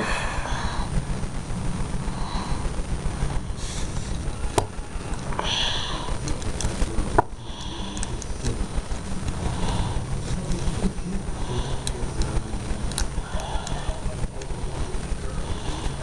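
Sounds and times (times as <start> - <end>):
sniffing and breathing: 3.3 - 4.2, 7.4 - 8.6, 9.3 - 16.0
toy parts clicking: 11.8 - 13.8.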